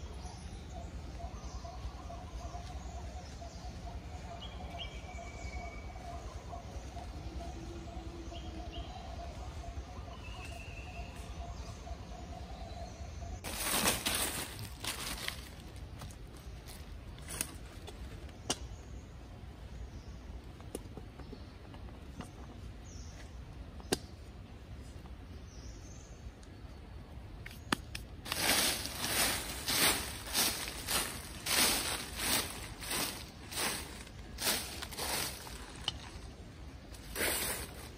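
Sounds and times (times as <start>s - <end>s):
hands digging in leaf litter: 13.4s - 17.4s, 28.2s - 36.3s, 37.0s - 37.9s
footsteps crunching dry leaves: 13.4s - 17.6s, 28.2s - 36.3s, 37.0s - 37.9s.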